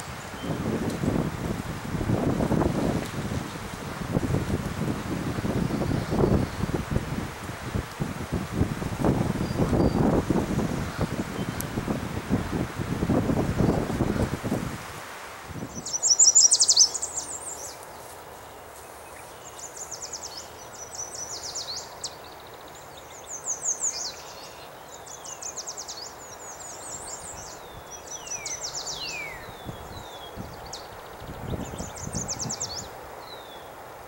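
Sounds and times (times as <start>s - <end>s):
faint outdoor hiss: 0.0s - 34.0s
warbler singing: 5.4s - 6.8s, 9.4s - 11.7s, 15.7s - 33.8s.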